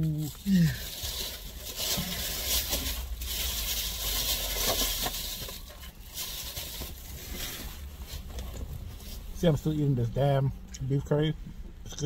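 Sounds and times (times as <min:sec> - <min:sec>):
food packaging crinkling: 0:00.0 - 0:08.3
steady low hum: 0:00.0 - 0:12.0.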